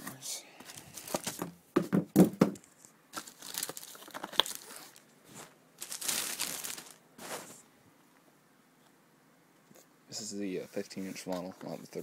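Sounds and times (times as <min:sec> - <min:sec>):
plastic wrap crinkling and tearing: 0:03.1 - 0:07.6.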